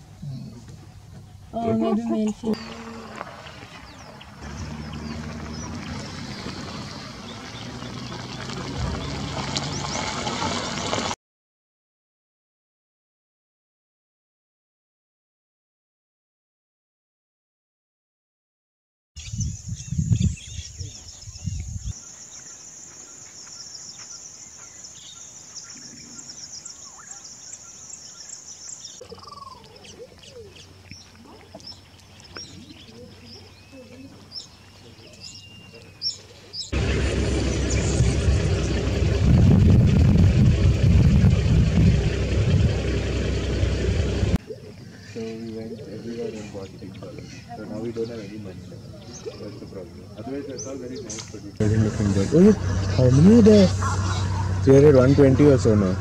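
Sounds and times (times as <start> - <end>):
low engine hum: 0.0 - 11.2, 36.7 - 44.4, 51.6 - 56.0
birds chirping: 0.1 - 10.6, 19.2 - 39.3, 42.0 - 56.0
birds chirping faintly: 19.2 - 38.9.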